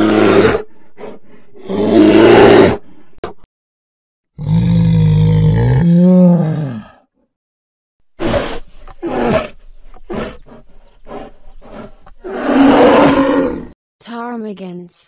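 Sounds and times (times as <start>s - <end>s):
bear roaring: 0.0s - 2.9s, 4.4s - 7.0s, 8.2s - 13.8s.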